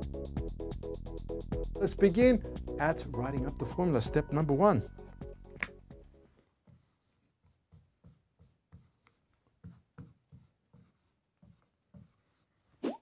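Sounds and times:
marker pen writing on whiteboard: 0:06.6 - 0:12.8.

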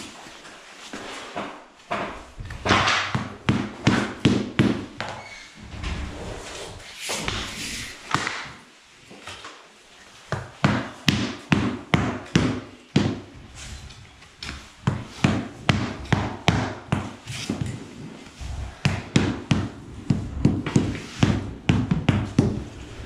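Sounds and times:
rubber mallet knocking wood planks: 0:01.9 - 0:05.1, 0:10.3 - 0:13.4, 0:14.5 - 0:17.8, 0:18.8 - 0:22.6.

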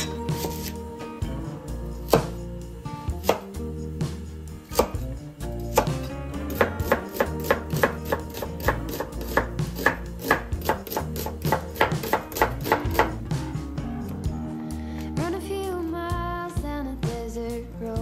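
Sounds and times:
knife slicing onion on board: 0:00.0 - 0:00.8, 0:02.0 - 0:02.4, 0:03.1 - 0:03.6, 0:04.7 - 0:05.0, 0:05.6 - 0:13.2.

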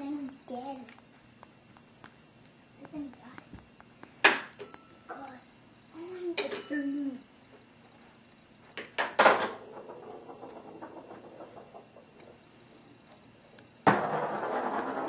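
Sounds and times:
sharp knocks and clatter: 0:08.8 - 0:12.4, 0:13.8 - 0:15.0.

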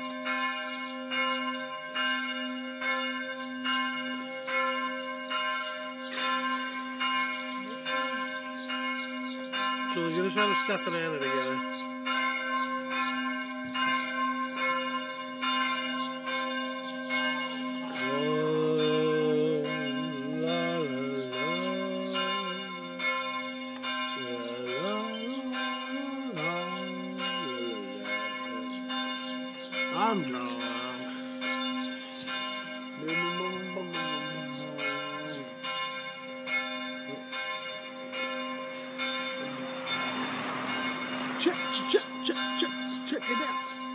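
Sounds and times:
church bells pealing: 0:00.0 - 0:43.9
ringing hum: 0:18.0 - 0:41.8.

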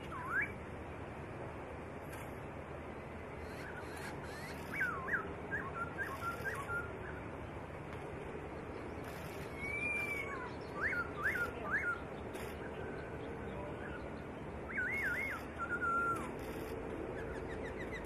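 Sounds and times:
bird whistling song: 0:00.0 - 0:00.6, 0:03.4 - 0:07.2, 0:09.1 - 0:13.0, 0:13.8 - 0:18.0
steady background hiss: 0:00.0 - 0:18.0.

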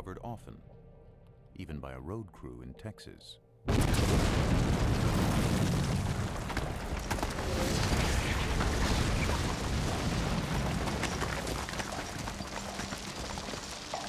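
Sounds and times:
rumble of collapsing rock: 0:03.7 - 0:14.0
stones clattering down: 0:05.1 - 0:14.0.

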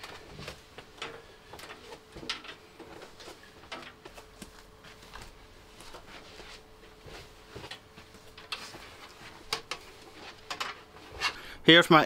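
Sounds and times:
faint steady hum: 0:00.0 - 0:12.0
hard objects clicking and knocking: 0:09.4 - 0:11.3.

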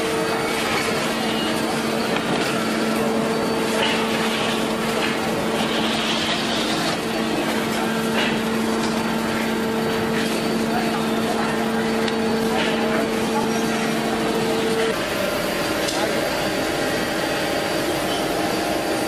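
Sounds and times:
machinery hum: 0:00.0 - 0:19.0.

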